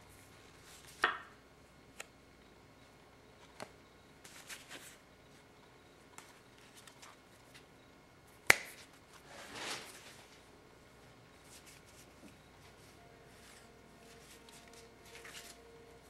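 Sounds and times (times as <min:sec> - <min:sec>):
playing cards snapping: 0:08.4 - 0:08.8.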